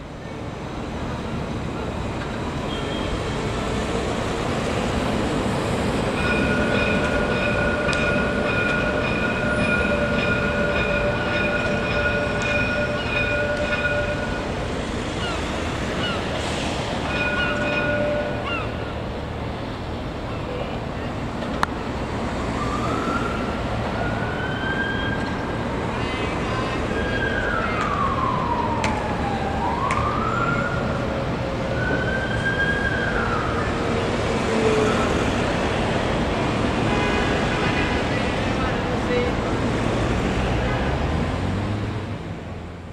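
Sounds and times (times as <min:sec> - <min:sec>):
city traffic noise: 0:00.0 - 0:42.9
tram high-pitched whine: 0:00.0 - 0:42.9
siren: 0:06.2 - 0:14.6, 0:17.0 - 0:18.8, 0:22.2 - 0:35.5.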